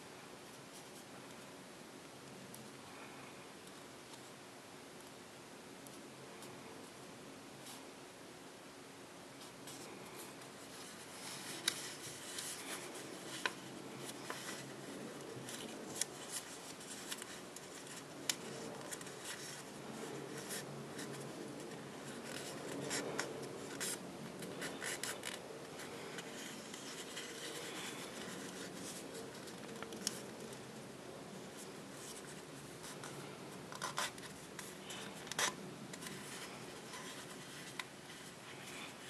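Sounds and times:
paper rustling and rubbing: 9.4 - 39.0
crisp paper creasing clicks: 20.3 - 30.5.

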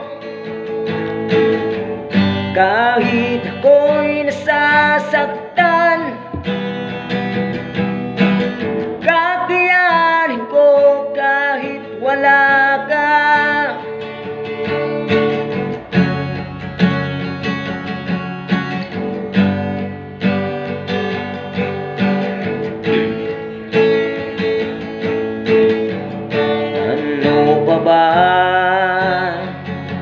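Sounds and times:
acoustic guitar strumming: 0.0 - 30.0.

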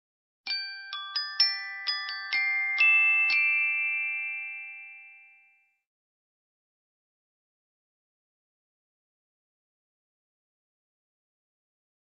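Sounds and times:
glockenspiel jingle: 0.5 - 5.9.

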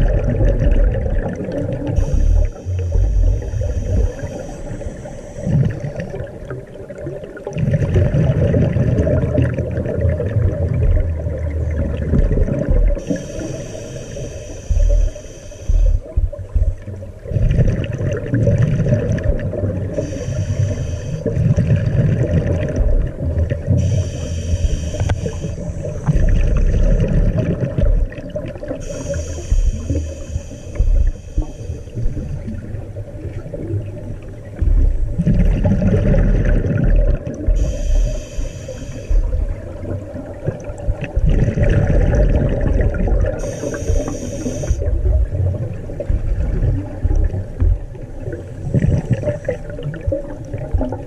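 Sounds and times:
high whine underwater: 0.0 - 51.0
underwater low rumble: 0.0 - 51.0.

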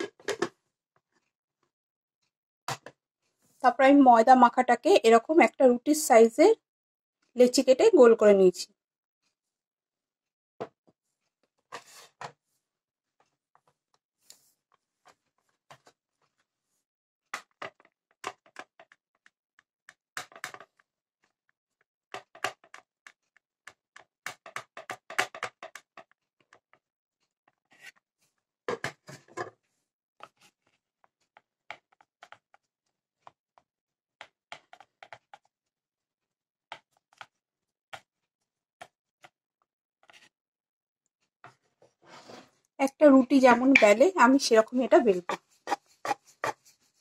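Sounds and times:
kitchenware clicks and taps: 43.6 - 44.1.

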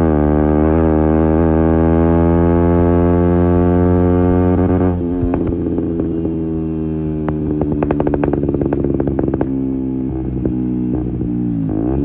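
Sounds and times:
motorcycle engine running: 0.0 - 12.0
exhaust backfire pops: 4.6 - 6.6, 7.2 - 9.6.

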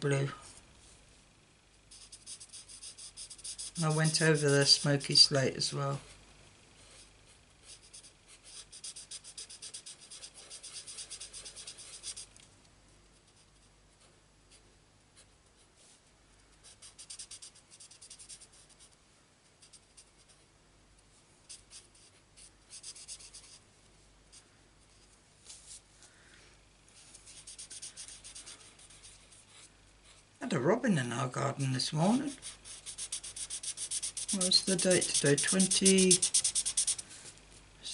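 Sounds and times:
marker scratching on cardstock: 1.9 - 5.0, 7.6 - 12.3, 16.6 - 19.0, 21.5 - 23.6, 27.3 - 29.7, 32.3 - 37.0.

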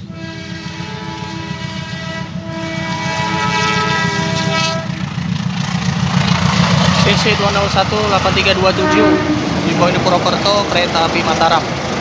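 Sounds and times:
locomotive horn blasts: 0.0 - 5.2, 8.7 - 9.6
low train rumble: 0.0 - 12.0.

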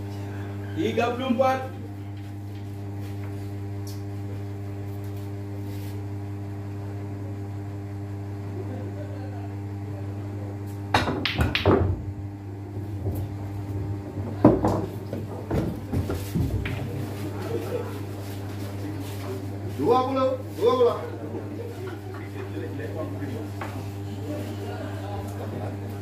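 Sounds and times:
low electrical hum: 0.0 - 26.0
pool balls knocking: 10.9 - 18.2
voices: 14.2 - 26.0.

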